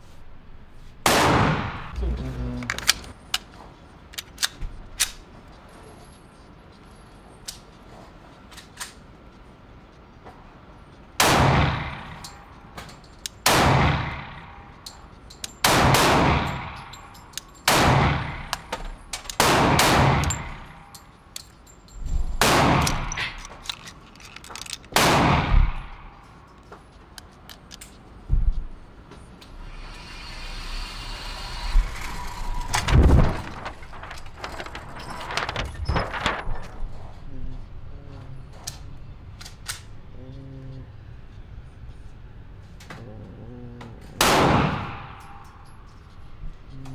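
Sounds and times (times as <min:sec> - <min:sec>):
echoing gunshots: 0:01.0 - 0:02.0, 0:11.2 - 0:12.2, 0:13.4 - 0:14.7, 0:15.6 - 0:17.0, 0:17.6 - 0:18.7, 0:19.4 - 0:20.8, 0:22.4 - 0:23.4, 0:24.9 - 0:26.1, 0:44.2 - 0:45.4.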